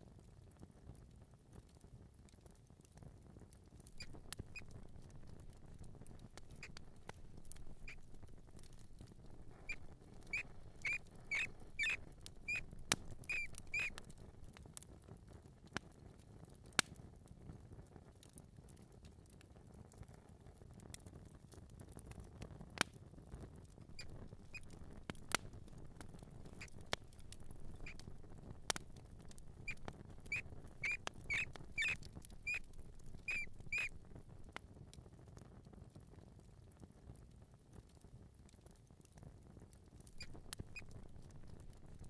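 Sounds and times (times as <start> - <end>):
mouse squeaking: 3.9 - 14.2, 24.0 - 34.0, 40.1 - 42.0
sharp ticks: 3.9 - 14.2, 24.0 - 34.0.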